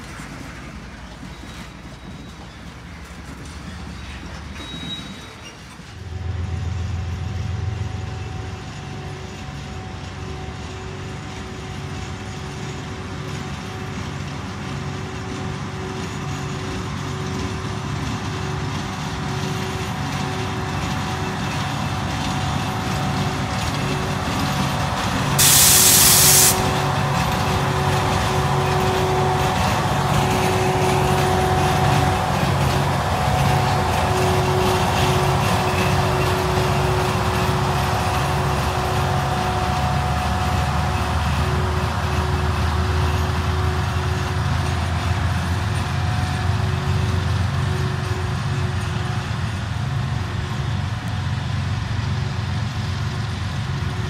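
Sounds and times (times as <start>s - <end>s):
diesel locomotive running: 0.0s - 54.0s
air hiss burst: 25.4s - 26.8s.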